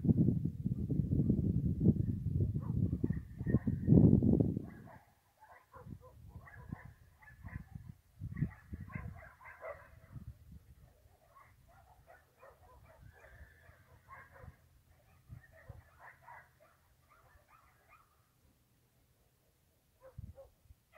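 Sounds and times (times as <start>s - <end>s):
distant dogs barking: 2.6s - 3.9s, 4.6s - 18.3s, 20.0s - 20.6s.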